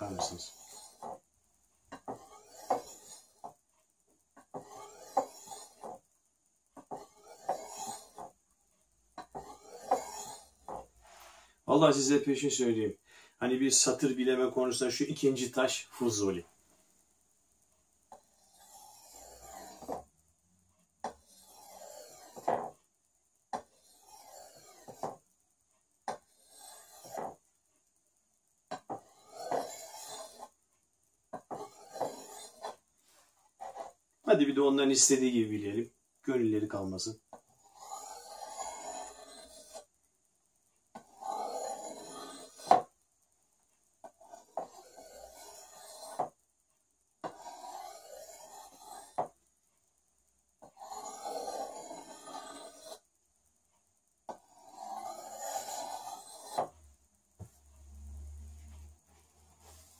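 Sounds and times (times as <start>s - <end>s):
blade rasping on a whetstone: 0.0s - 1.2s, 1.9s - 3.6s, 4.5s - 6.1s, 6.8s - 8.3s, 9.2s - 10.9s, 18.1s - 20.1s, 21.0s - 22.8s, 23.6s - 25.2s, 26.1s - 27.4s, 28.7s - 30.6s, 31.3s - 32.8s, 37.4s - 39.9s, 41.0s - 42.9s, 44.0s - 46.4s, 47.2s - 49.3s, 50.7s - 53.0s, 54.3s - 56.8s, 58.4s - 59.9s.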